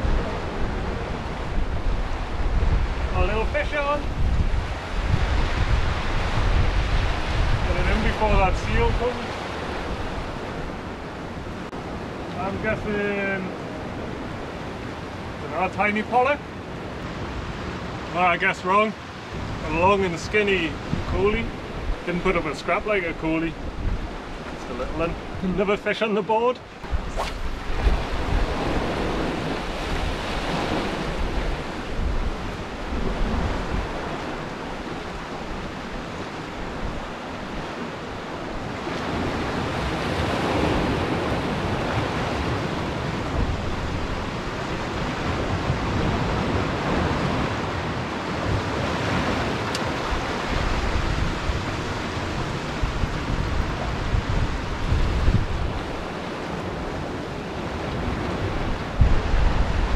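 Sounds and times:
wind buffeting microphone: 0.0s - 12.8s, 19.2s - 25.6s, 26.7s - 59.9s
waves breaking on rocks: 26.8s - 54.7s.

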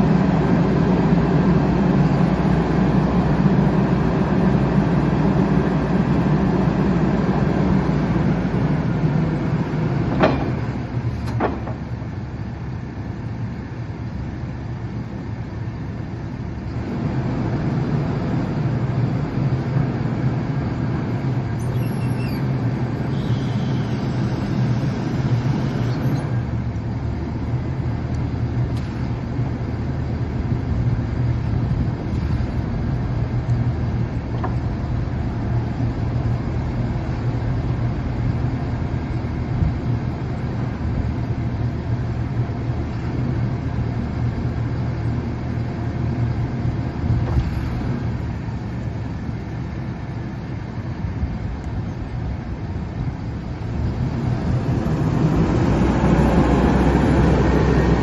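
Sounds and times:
forklift engine revving: 0.0s - 12.6s, 16.2s - 37.5s, 53.6s - 58.0s
forklift diesel engine idling: 0.0s - 55.2s.

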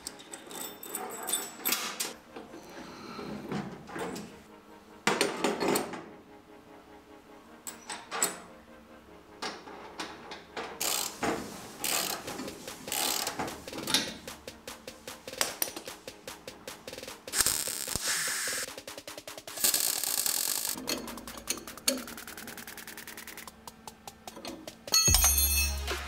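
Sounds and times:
socket ratchet clicking: 10.8s - 11.2s, 11.8s - 12.3s, 12.9s - 14.2s
metal clinks and knocks: 24.2s - 26.0s.

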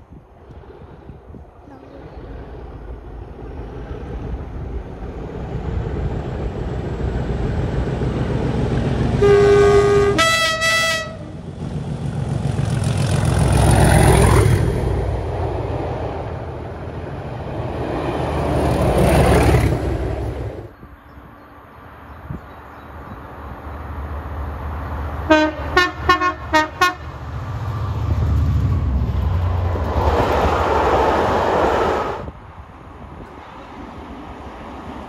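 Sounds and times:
diesel locomotive engine growl: 0.0s - 21.0s, 21.6s - 35.0s
train passing: 0.0s - 35.0s
locomotive horn chords: 9.2s - 11.4s, 25.3s - 27.2s.

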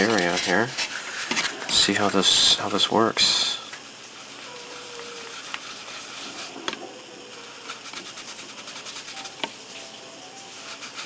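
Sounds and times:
cloth rubbing plastic: 4.2s - 9.4s.

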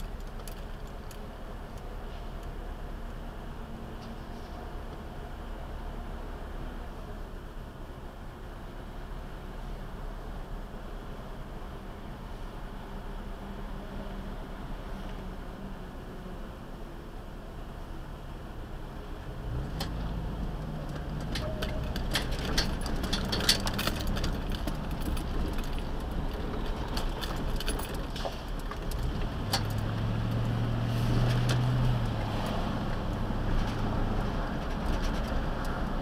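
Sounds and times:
car engine and road rumble: 0.0s - 36.0s
clicks and jingling rattles: 21.2s - 29.8s.

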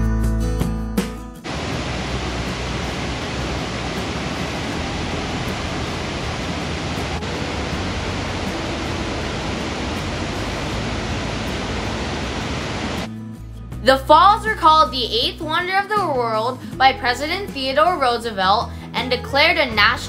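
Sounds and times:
waterfall rushing: 1.4s - 13.1s.

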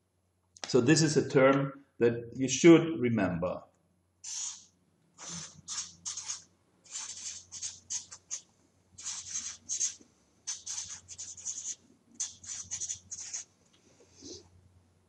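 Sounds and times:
marker scratching on paper: 4.2s - 13.5s.

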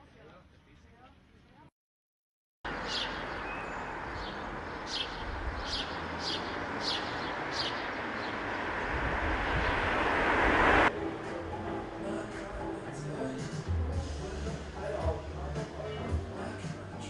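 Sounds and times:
passing vehicle rushing: 2.7s - 11.2s.

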